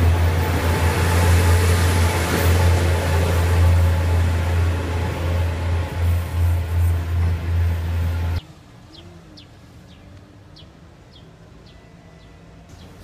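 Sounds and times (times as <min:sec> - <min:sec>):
diesel railcar engine running: 0:00.0 - 0:08.4.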